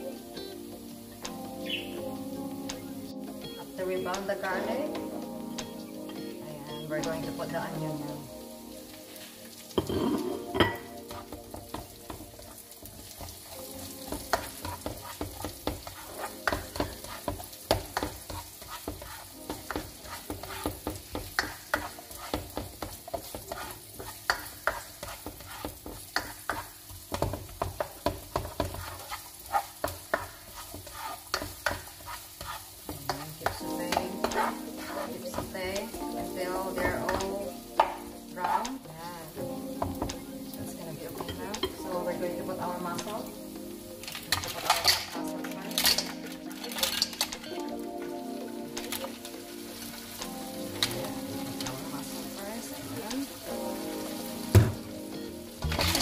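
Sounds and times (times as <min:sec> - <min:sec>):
vegetables sizzling in hot oil: 0:00.0 - 0:56.0
spatula scraping a pan: 0:14.1 - 0:35.6.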